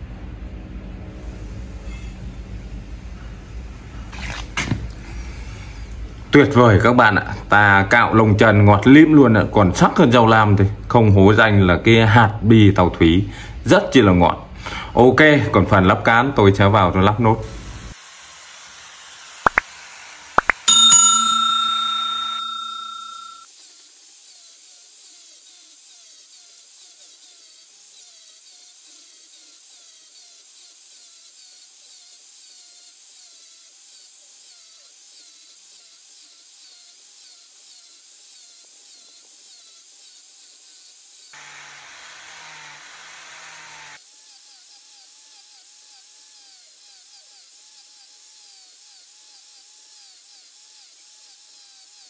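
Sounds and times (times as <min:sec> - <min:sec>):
metal strike with bell-like ring: 0:20.6 - 0:23.4.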